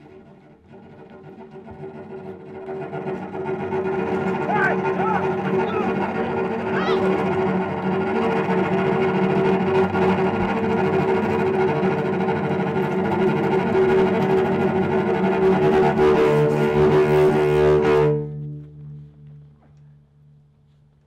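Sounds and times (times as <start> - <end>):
orchestral strings with cello: 0.0 - 20.5.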